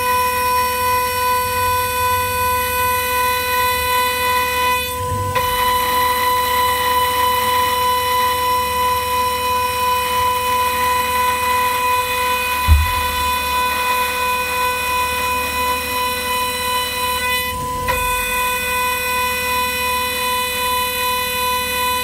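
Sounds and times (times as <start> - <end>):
low rumble: 12.7 - 13.8.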